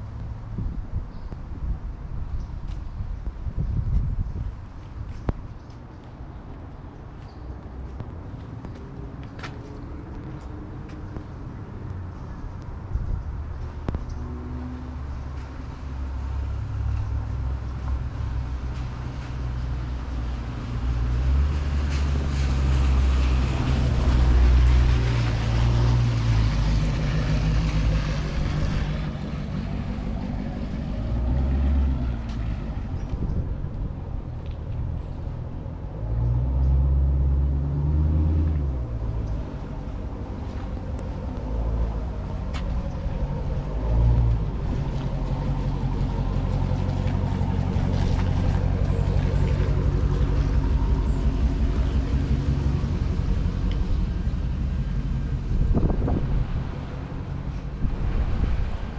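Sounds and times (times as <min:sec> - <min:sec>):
wind buffeting microphone: 0:00.0 - 0:08.8, 0:22.1 - 0:35.4, 0:40.8 - 0:58.9.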